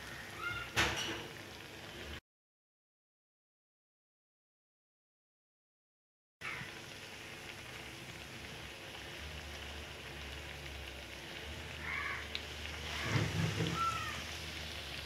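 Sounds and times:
oil sizzling in frying pan: 0.0 - 2.2, 6.4 - 15.0.

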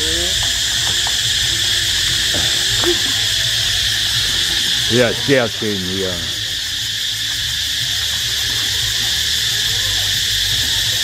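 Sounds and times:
insects chorus droning: 0.0 - 11.0.

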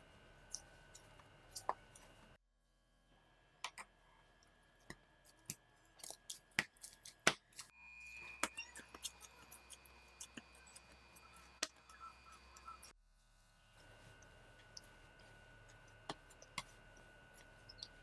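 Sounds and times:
hands kneading dough: 13.7 - 18.0.

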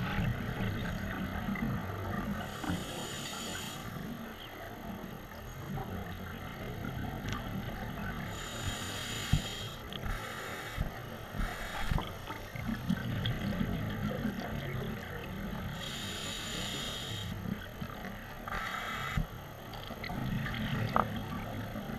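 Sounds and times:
exhaled bubbles gurgling: 0.0 - 21.9
scuba regulator inhalation hiss: 2.5 - 4.0, 8.3 - 12.0, 15.7 - 17.4, 18.5 - 19.2.

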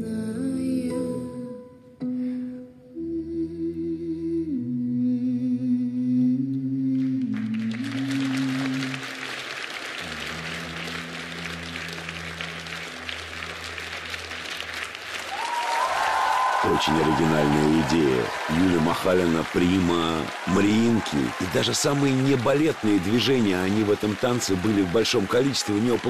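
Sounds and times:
slow music with low notes: 0.0 - 8.2
audience applause: 7.3 - 26.0.

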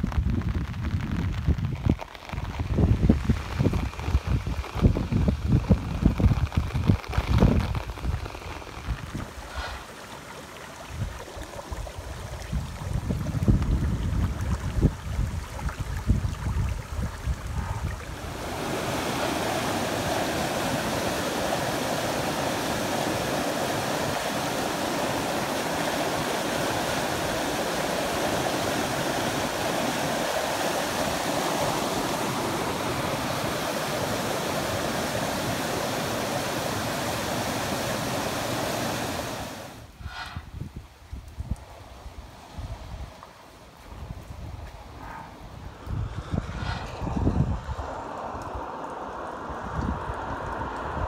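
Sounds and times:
wind buffeting microphone: 0.0 - 37.5, 39.1 - 51.0
water spilling across road: 0.0 - 40.0, 45.7 - 51.0
floodwater rushing: 2.2 - 40.4.

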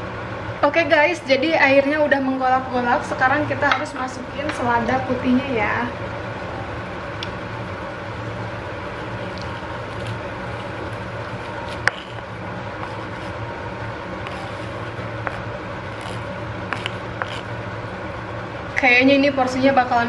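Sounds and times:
low hum: 2.4 - 20.0
broth boiling in a wok: 4.9 - 18.7.

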